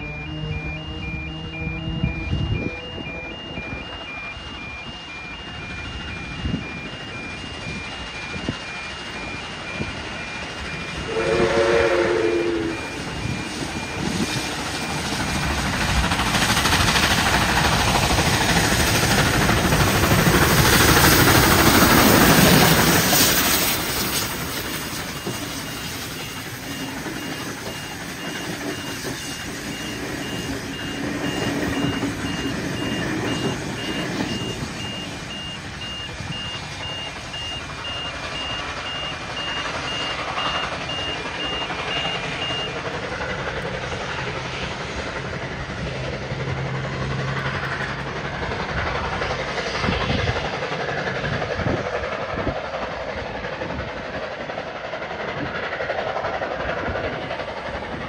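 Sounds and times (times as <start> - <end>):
high-pitched electronic beeps: 0.0 - 11.1, 12.5 - 15.1, 19.2 - 42.8
steam locomotive hauling train: 0.0 - 58.0
train wheels rolling on rails: 0.0 - 58.0.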